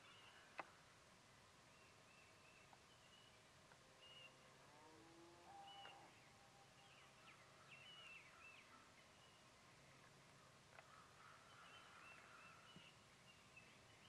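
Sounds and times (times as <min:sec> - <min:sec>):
distant birds chirping: 0:05.5 - 0:14.0.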